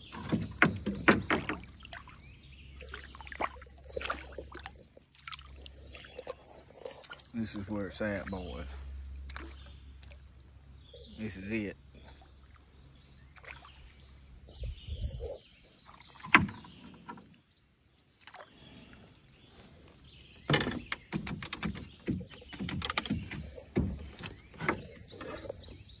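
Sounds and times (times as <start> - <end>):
knocks and rattles in a boat: 0.0 - 2.2, 16.1 - 17.4, 19.8 - 26.0.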